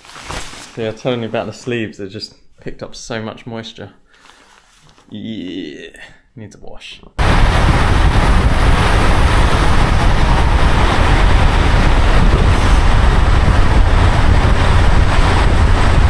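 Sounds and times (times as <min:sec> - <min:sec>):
wind buffeting microphone: 0:07.2 - 0:16.0.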